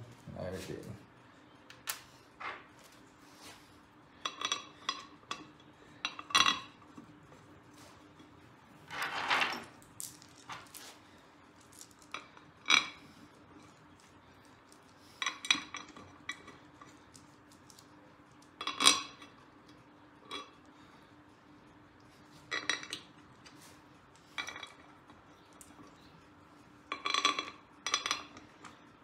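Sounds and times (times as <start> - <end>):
metal parts clinking and rattling: 8.9 - 11.0.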